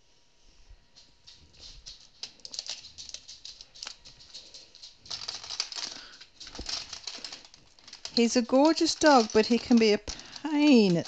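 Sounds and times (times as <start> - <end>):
small hard items clicking and rattling: 1.3 - 11.0.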